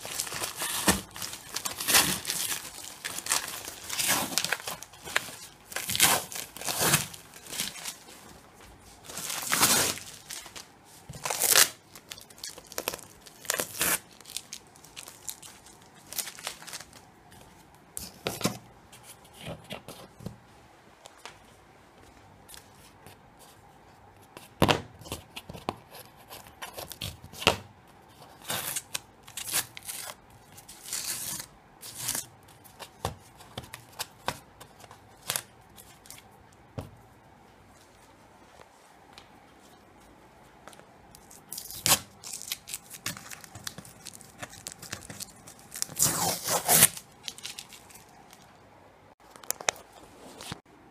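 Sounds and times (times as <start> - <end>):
cardboard and plastic tearing: 0.0 - 8.0, 9.1 - 17.0, 41.6 - 48.1.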